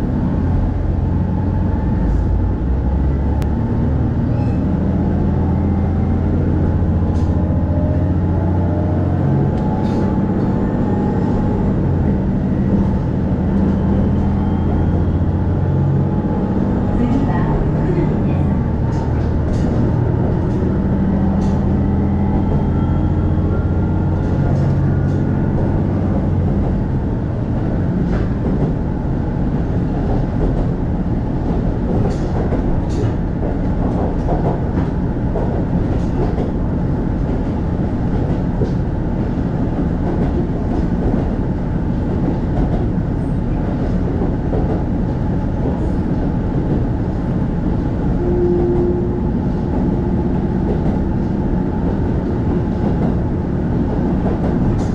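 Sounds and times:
low diesel engine drone: 0.0s - 54.9s
wheels rumbling on track: 0.0s - 54.9s
rail-joint clicks: 7.0s - 7.5s, 9.5s - 14.0s, 16.9s - 26.8s, 31.4s - 41.4s, 42.0s - 54.9s.

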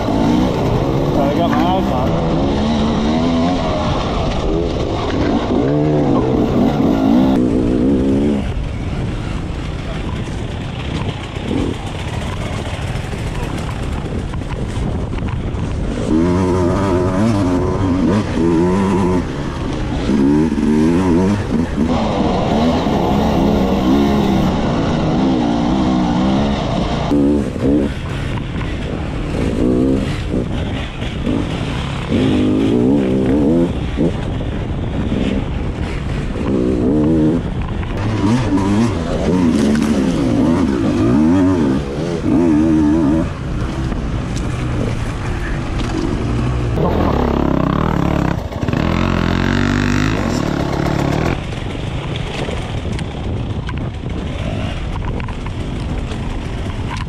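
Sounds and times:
dirt bike engine revving: 0.0s - 14.2s, 15.6s - 52.7s.

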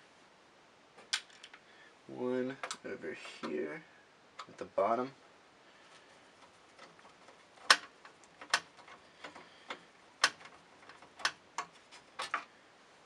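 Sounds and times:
sharp metallic clicks of screws: 7.6s - 12.5s.

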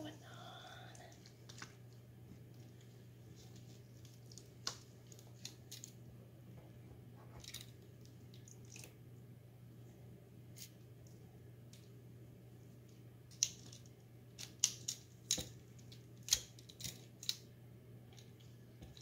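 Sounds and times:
wet squishing: 0.8s - 6.0s, 7.4s - 9.0s.

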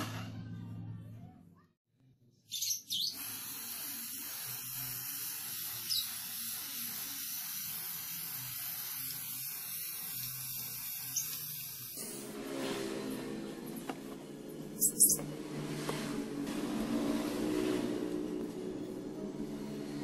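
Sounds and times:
spray can hissing: 2.9s - 12.2s, 14.8s - 15.2s.

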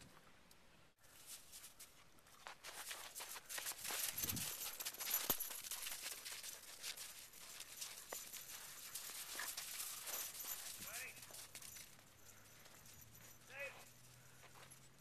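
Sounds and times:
rustling: 1.0s - 14.8s
footsteps crunching on snow: 1.1s - 11.7s.

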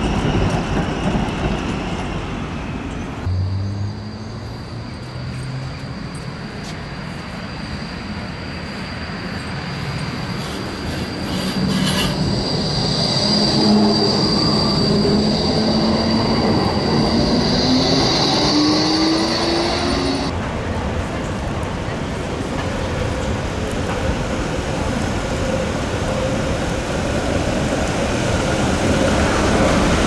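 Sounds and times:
tram wheels squealing: 0.0s - 20.3s
tram drive whine rising: 3.2s - 20.3s.

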